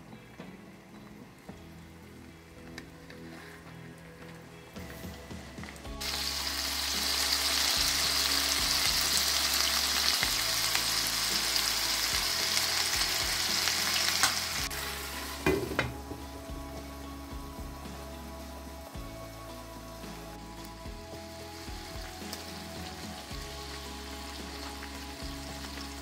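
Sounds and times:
chicken sizzling in oil: 5.9s - 26.0s.

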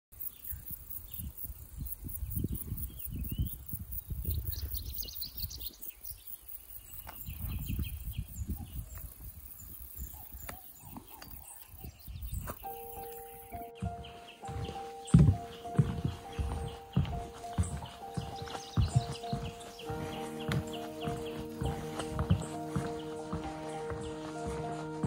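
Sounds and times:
small birds chirping: 0.2s - 25.0s
wind buffeting microphone: 0.5s - 5.8s, 7.0s - 12.8s.

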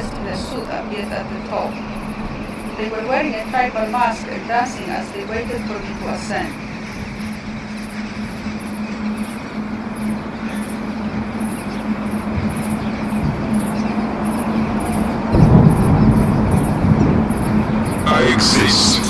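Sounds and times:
deep rumble: 0.0s - 8.1s, 9.7s - 19.0s
pulsing high hiss: 0.0s - 10.9s
low hum: 0.0s - 19.0s
rushing noise: 0.0s - 19.0s.

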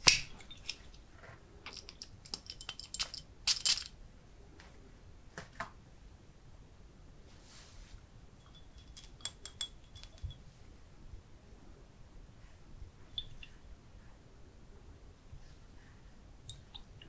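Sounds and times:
glass bottle clicks and taps: 8.4s - 10.4s.

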